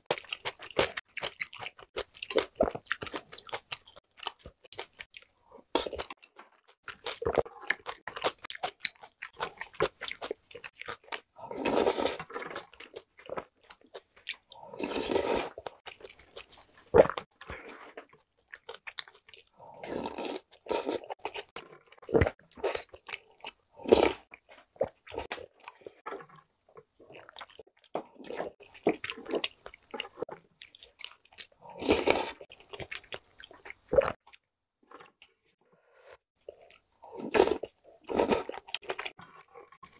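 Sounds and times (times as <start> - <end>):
wet chewing and mouth clicks: 0.0 - 35.4
slurping soup from a spoon: 11.4 - 12.7, 14.7 - 15.7, 19.7 - 23.1.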